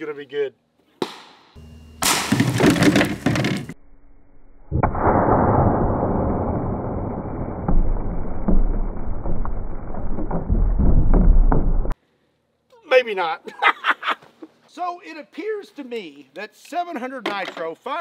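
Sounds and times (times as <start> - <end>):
slowed-down blast boom: 3.8 - 12.0.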